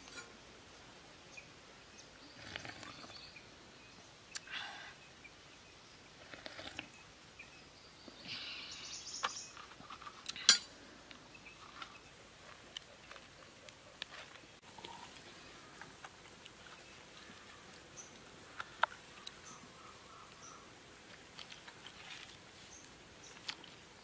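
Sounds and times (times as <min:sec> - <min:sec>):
coconut husk scraping: 0:21.0 - 0:23.9.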